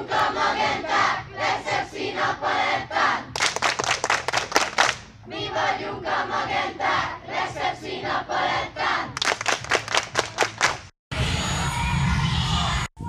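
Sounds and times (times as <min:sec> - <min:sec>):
hand claps: 0:03.4 - 0:05.1, 0:09.2 - 0:10.9.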